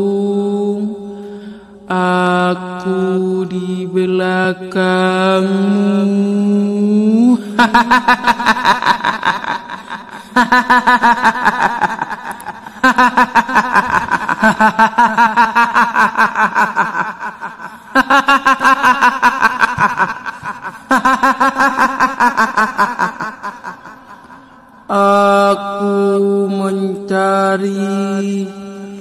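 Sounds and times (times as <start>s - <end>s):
cackling laugh: 7.6s - 24.6s.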